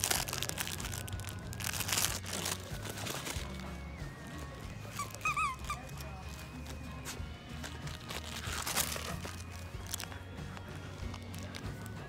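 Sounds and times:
background music: 0.0 - 12.0
plush toy crinkling and rustling: 0.0 - 12.0
toy squeaks: 4.5 - 10.0.

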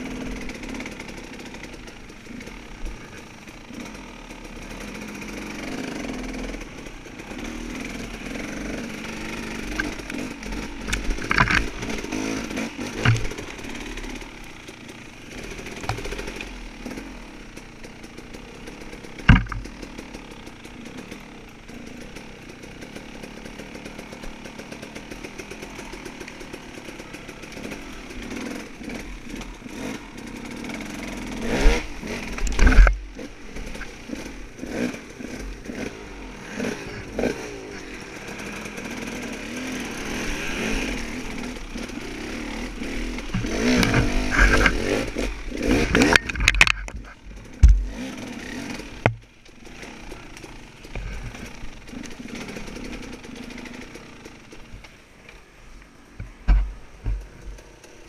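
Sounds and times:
dirt bike engine revving: 0.0 - 58.0
sharp thumps: 19.3 - 19.7, 43.2 - 48.0.

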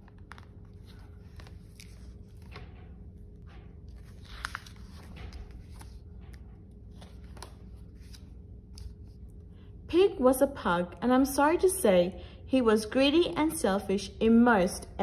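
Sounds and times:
paper rustles and light taps: 0.0 - 9.0
book pages turning: 0.0 - 9.5.

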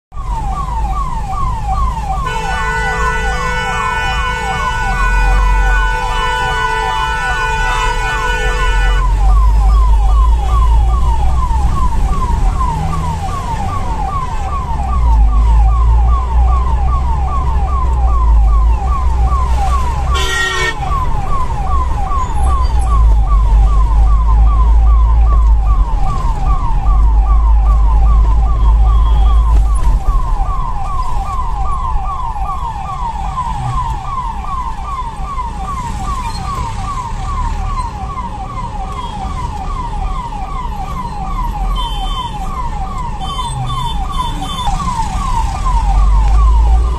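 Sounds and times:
ambulance siren yelping: 0.1 - 46.9
vehicle horn: 2.2 - 9.1, 20.1 - 20.8.

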